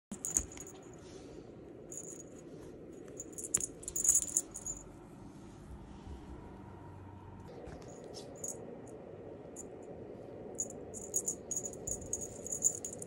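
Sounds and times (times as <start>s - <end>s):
cat wand toy rattling: 0.1s - 0.9s, 1.9s - 2.3s, 3.1s - 4.8s, 10.6s - 13.0s.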